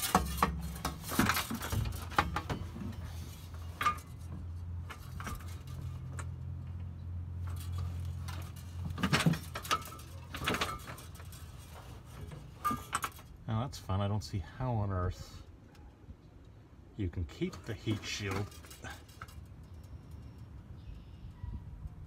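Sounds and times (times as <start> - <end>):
metal clanking and rattling: 0.0 - 13.4, 17.4 - 20.4.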